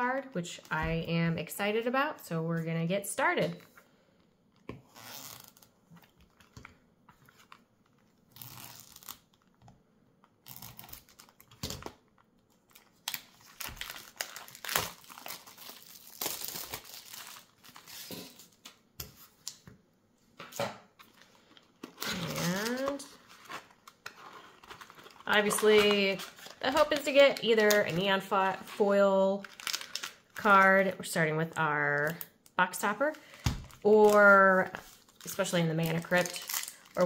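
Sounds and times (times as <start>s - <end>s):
plastic wrap crinkling and tearing: 4.8s - 9.6s, 10.3s - 19.6s, 21.0s - 37.0s
scissors cutting plastic wrap: 12.7s - 18.5s, 21.8s - 28.6s, 29.4s - 30.8s.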